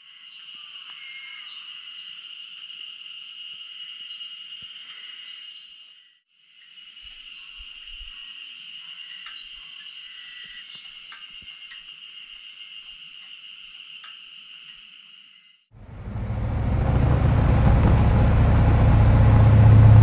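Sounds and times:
insects chorus: 0.0 - 20.0
faint ticks: 9.0 - 12.1, 14.0 - 14.8.

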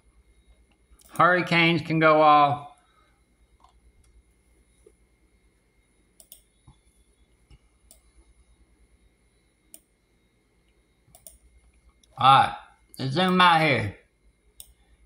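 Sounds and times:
computer mouse clicks: 0.7 - 1.2, 3.6 - 4.2, 6.2 - 6.8, 7.5 - 8.1, 9.7 - 9.9, 10.6 - 12.2, 14.6 - 14.8.

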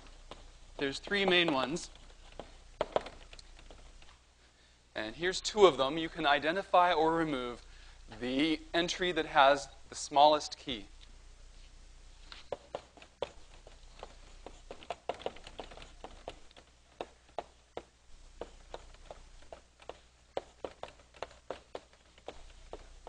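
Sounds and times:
chalk tapping on blackboard: 0.2 - 3.8, 12.4 - 23.0.

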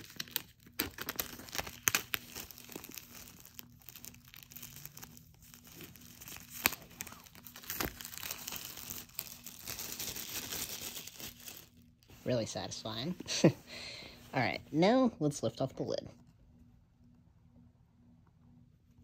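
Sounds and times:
plastic wrap crinkling: 0.0 - 13.2.

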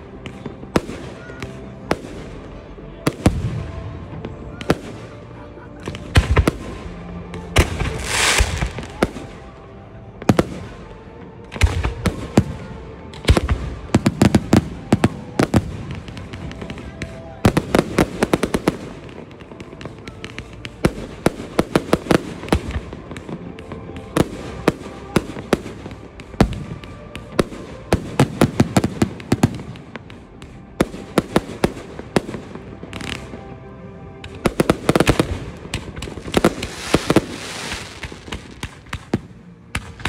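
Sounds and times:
fireworks crackling: 0.0 - 40.0
fireworks bangs: 7.4 - 9.4, 34.2 - 40.0.

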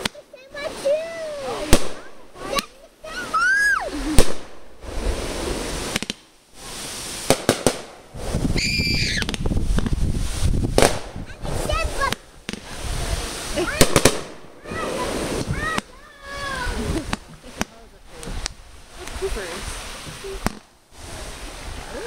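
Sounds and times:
crackling hiss: 0.0 - 22.0
fireworks bangs: 0.0 - 22.0
fireworks cracks: 0.0 - 22.0
fireworks whistle: 3.2 - 17.2.

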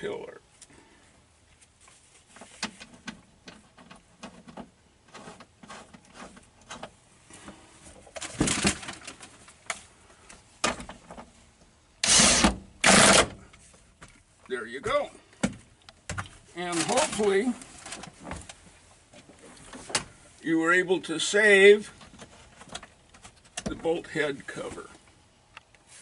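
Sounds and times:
cordless drill bursts: 12.0 - 13.4.

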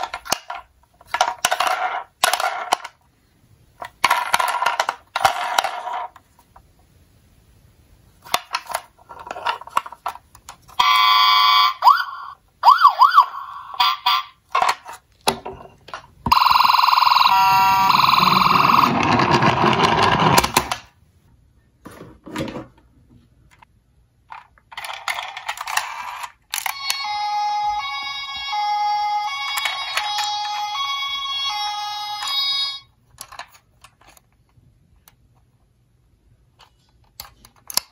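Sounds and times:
toy being handled and rolled: 0.0 - 7.0, 8.1 - 21.0, 21.8 - 37.9
toy wailing siren: 10.8 - 14.4, 16.3 - 19.0, 26.6 - 32.9.

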